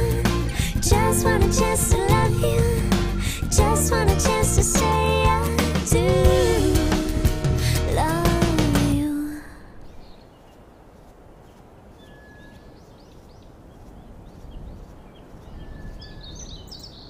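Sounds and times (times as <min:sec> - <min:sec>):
low outdoor rumble: 0:00.0 - 0:09.9
birds chirping: 0:09.8 - 0:17.0.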